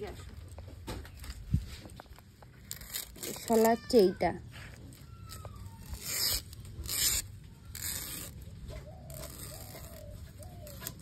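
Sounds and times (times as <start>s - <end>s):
metal blade scraping palm leaves: 2.6s - 4.3s, 5.7s - 11.0s.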